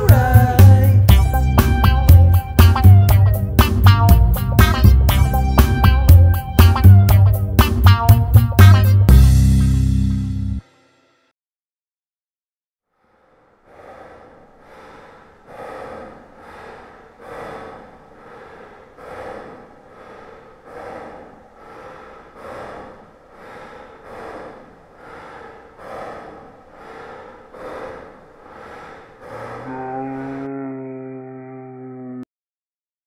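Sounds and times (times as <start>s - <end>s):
man breathing heavily: 0.0s - 8.6s, 13.0s - 30.0s.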